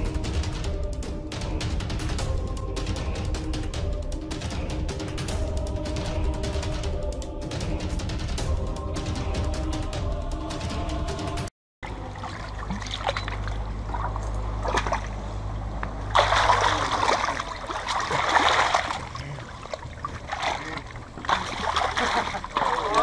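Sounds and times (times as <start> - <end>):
low steady hum: 11.8 - 23.0
river water splashing: 11.8 - 23.0.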